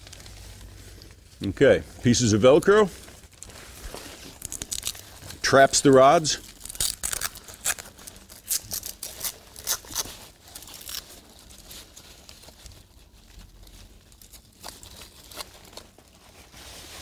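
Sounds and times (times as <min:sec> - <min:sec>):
velcro tabs fastening: 0:03.2 - 0:12.9, 0:13.7 - 0:17.0.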